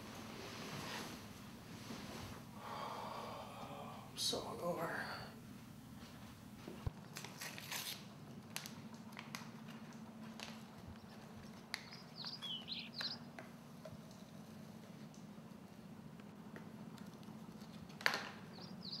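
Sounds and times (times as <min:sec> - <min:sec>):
steady low hum: 0:00.0 - 0:07.2
sachet crinkling and tearing: 0:07.0 - 0:09.8
faint bird chirps: 0:11.8 - 0:13.3, 0:18.5 - 0:19.0.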